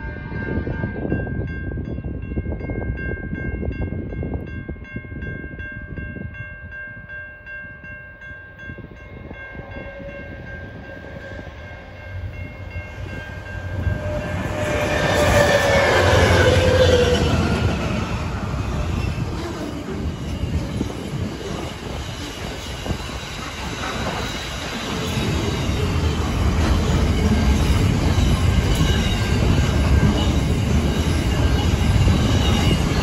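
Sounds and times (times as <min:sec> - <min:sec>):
ringing chime: 0:01.0 - 0:15.5
locomotives passing: 0:09.2 - 0:33.0.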